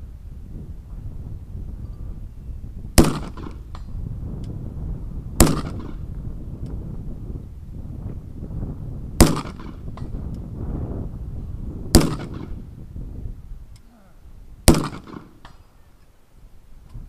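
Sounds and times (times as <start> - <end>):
rifle shots with echo: 3.0 - 3.7, 5.4 - 6.0, 9.2 - 9.9, 11.9 - 12.6, 14.7 - 15.5.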